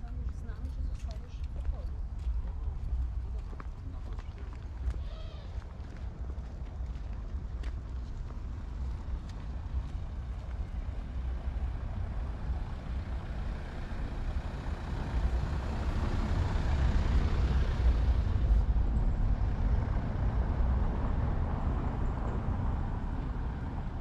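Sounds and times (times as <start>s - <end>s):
steady low rumble: 0.0s - 24.0s
motor vehicle passing by: 8.3s - 24.0s.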